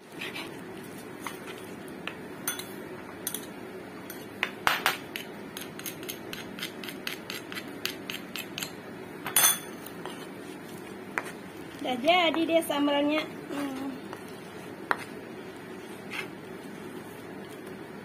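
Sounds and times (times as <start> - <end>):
pestle knocking and scraping in mortar: 14.1 - 15.2.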